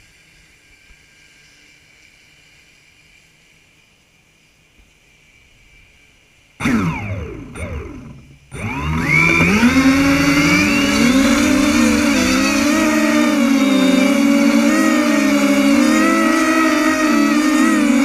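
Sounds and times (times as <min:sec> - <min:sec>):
drone motors buzzing: 0:06.6 - 0:18.0.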